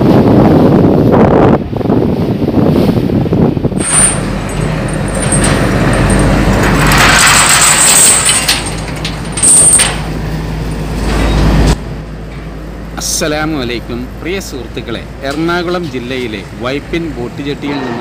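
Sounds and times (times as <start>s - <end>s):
noisy wash: 0.0s - 18.0s
heavy engine droning: 3.7s - 18.0s.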